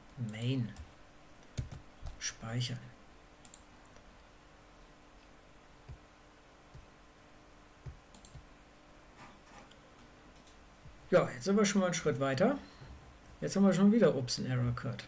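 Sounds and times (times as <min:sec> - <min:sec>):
mouse and keyboard clicks: 0:07.9 - 0:08.5.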